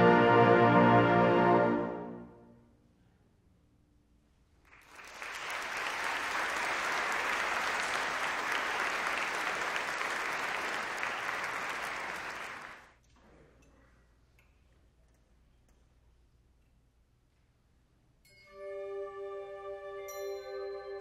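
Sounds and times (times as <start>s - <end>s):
audience applauding: 4.7s - 13.0s.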